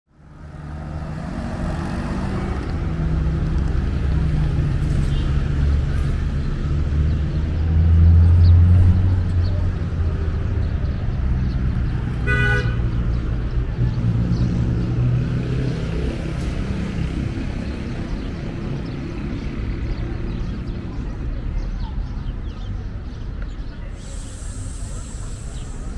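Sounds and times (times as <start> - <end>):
road traffic engines: 0.1 - 25.9
car horn toot: 12.2 - 12.8.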